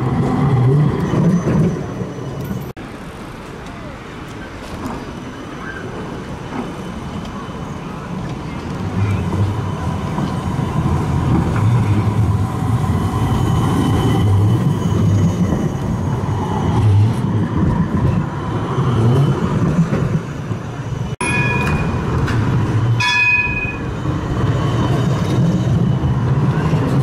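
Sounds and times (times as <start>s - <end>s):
tram rumbling past: 0.0s - 27.0s
high-pitched ringing tones: 21.2s - 26.4s.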